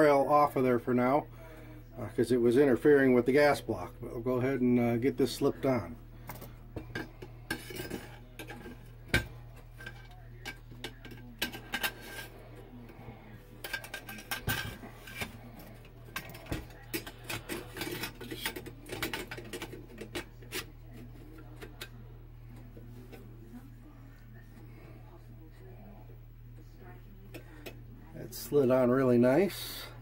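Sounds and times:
metallic clicks and scrapes: 0:06.2 - 0:22.0.

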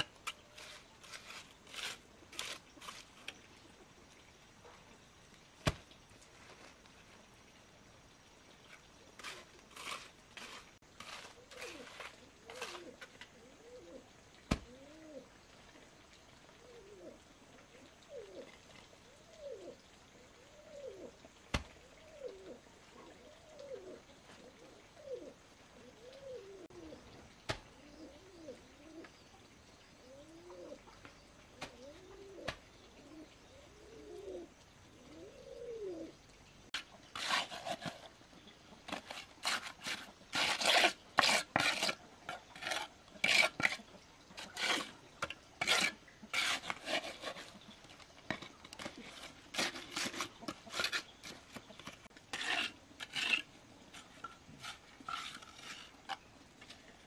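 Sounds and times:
trowel scraping wet mortar: 0:00.0 - 0:03.4, 0:08.7 - 0:13.3, 0:36.8 - 0:38.2, 0:38.9 - 0:56.9
bird calling: 0:30.0 - 0:36.2.

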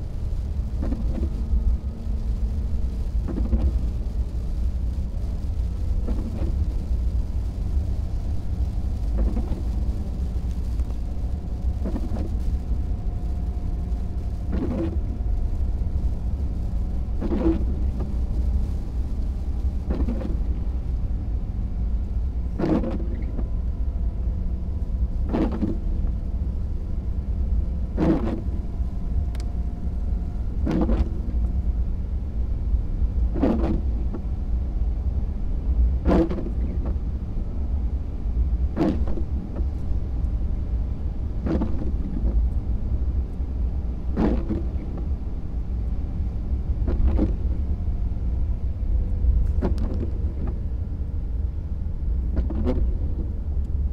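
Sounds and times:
car cabin rumble and road noise: 0:00.0 - 0:53.9
windshield wipers swishing: 0:00.3 - 0:21.1, 0:22.5 - 0:23.6, 0:25.1 - 0:26.2, 0:27.9 - 0:28.8, 0:29.4 - 0:31.4, 0:33.3 - 0:34.3, 0:36.1 - 0:37.0, 0:38.8 - 0:40.0, 0:41.4 - 0:42.6, 0:44.1 - 0:45.2, 0:46.8 - 0:47.9, 0:49.4 - 0:50.9, 0:51.6 - 0:53.4.

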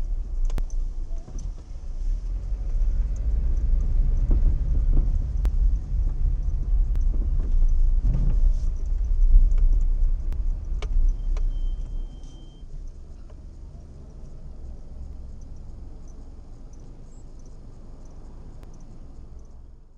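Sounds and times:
engine idle hum: 0:00.0 - 0:19.9
vehicle engine and road rumble: 0:00.0 - 0:19.9.

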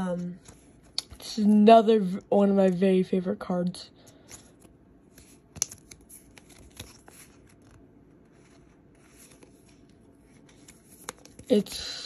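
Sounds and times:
plastic card sleeves rustling: 0:04.1 - 0:11.8.

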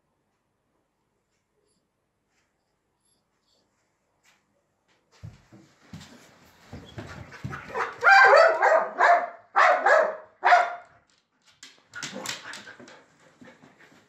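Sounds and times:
small dog barking: 0:07.7 - 0:10.8.

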